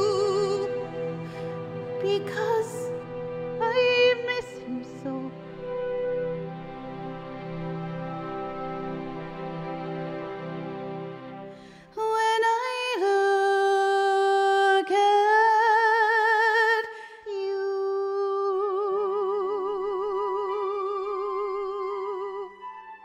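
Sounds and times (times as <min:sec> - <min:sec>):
woman singing with vibrato: 0:00.0 - 0:01.2, 0:01.9 - 0:05.4, 0:11.9 - 0:22.8
soft orchestral accompaniment: 0:00.0 - 0:23.0.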